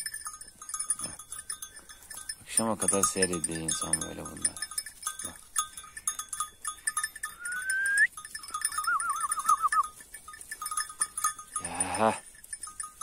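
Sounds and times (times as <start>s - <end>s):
sheep tearing and crunching grass: 0.0s - 7.2s, 8.1s - 13.0s
warbling whistle: 7.4s - 8.1s, 8.8s - 9.8s.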